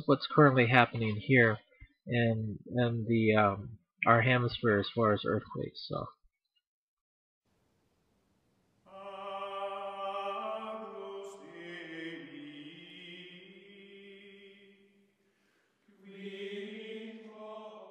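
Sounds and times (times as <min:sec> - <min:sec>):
choir of held voices: 0:08.9 - 0:14.9, 0:15.9 - 0:17.9.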